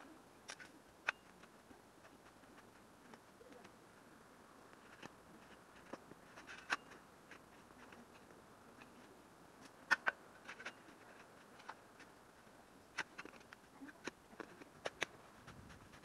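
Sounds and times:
sharp crunching clicks: 0:09.6 - 0:12.1, 0:12.9 - 0:15.2.

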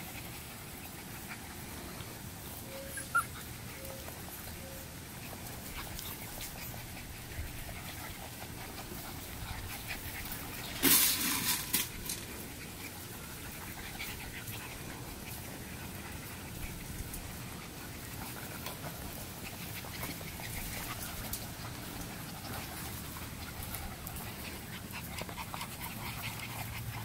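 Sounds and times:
noisy burst of puppies playing: 0:00.0 - 0:27.0
puppies squeaking: 0:02.5 - 0:10.7.

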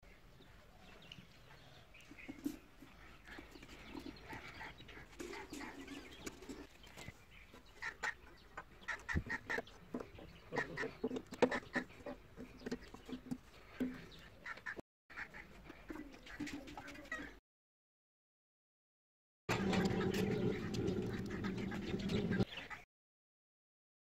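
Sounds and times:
bird calls: 0:00.1 - 0:17.4, 0:19.6 - 0:22.8
chickens clucking: 0:01.9 - 0:17.4, 0:19.5 - 0:22.8.

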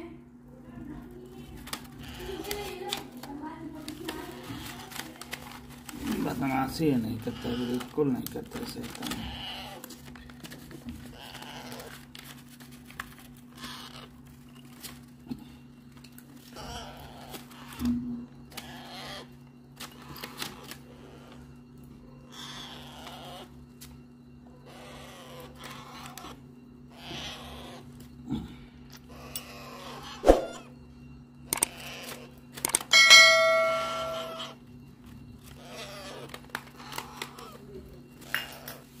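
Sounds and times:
parrot chicks raspy calls: 0:01.4 - 0:03.0, 0:03.8 - 0:12.5, 0:13.2 - 0:15.0, 0:16.4 - 0:23.7, 0:24.4 - 0:30.7, 0:31.4 - 0:34.7, 0:35.4 - 0:39.0
steady low hum: 0:20.8 - 0:22.4, 0:23.4 - 0:39.0
struck metal ringing: 0:32.9 - 0:34.5.

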